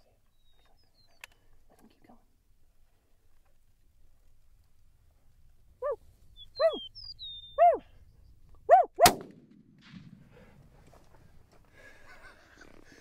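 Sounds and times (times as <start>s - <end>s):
bird chirping: 0.2s - 1.5s, 5.8s - 8.9s
dog barking: 6.6s - 6.8s, 7.6s - 7.8s, 8.7s - 9.0s
rifle shot with echo: 9.0s - 10.6s.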